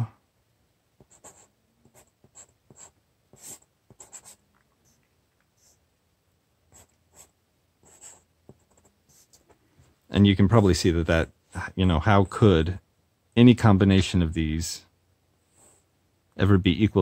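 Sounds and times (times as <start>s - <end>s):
marker writing on paper: 1.0s - 5.0s, 6.7s - 9.6s.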